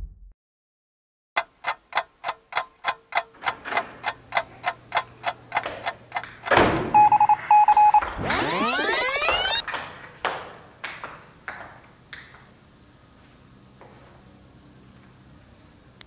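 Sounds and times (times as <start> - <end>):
short high beeps: 7.0 - 9.6
rising sweep tone: 8.3 - 9.6.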